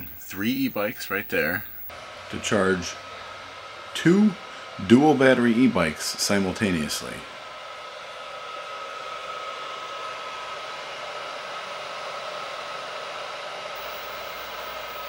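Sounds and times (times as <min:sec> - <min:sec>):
thin high electrical hum: 0:00.0 - 0:08.9, 0:13.8 - 0:15.0
cooling fans whirring: 0:00.0 - 0:15.0.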